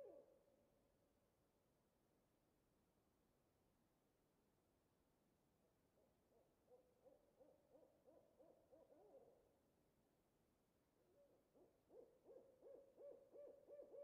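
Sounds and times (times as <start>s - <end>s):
owl hooting: 6.7s - 9.3s, 11.2s - 14.0s.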